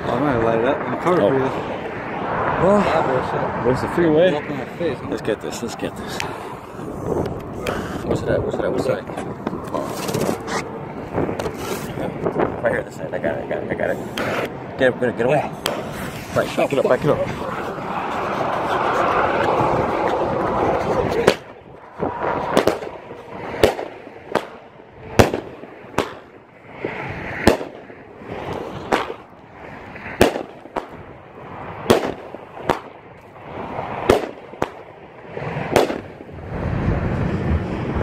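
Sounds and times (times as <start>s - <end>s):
firework launches and bursts: 21.1s - 38.0s.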